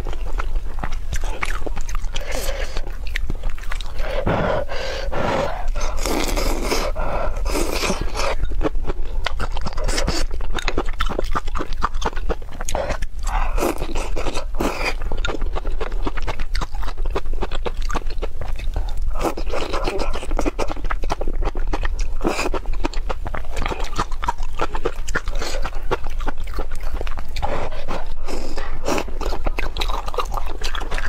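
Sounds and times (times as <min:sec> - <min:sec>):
chewing: 0:00.0 - 0:31.0
person slurping noodles: 0:03.9 - 0:08.4.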